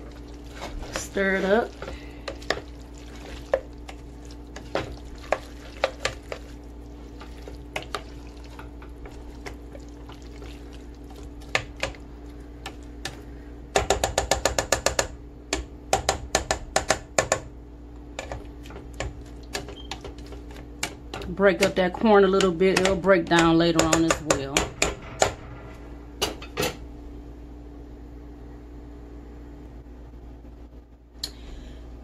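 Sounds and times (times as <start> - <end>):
steady low hum: 0.0 - 32.0
spoon tapping rapidly: 20.8 - 24.9.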